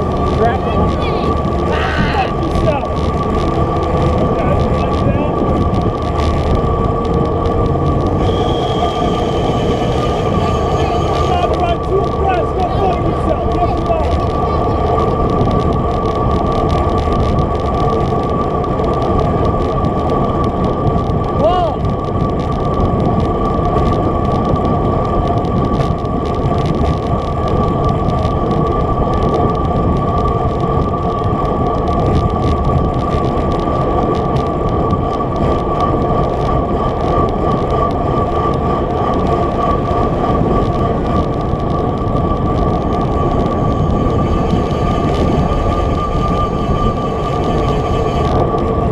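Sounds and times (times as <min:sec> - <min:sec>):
road and tyre rumble: 0:00.0 - 0:48.9
wind rushing over microphone: 0:00.0 - 0:48.9
high-pitched whistle: 0:08.2 - 0:09.7.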